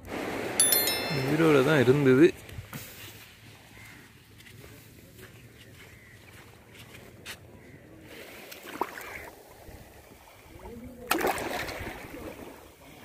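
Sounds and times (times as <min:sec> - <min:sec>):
sea water washing over sand: 0:08.0 - 0:13.0.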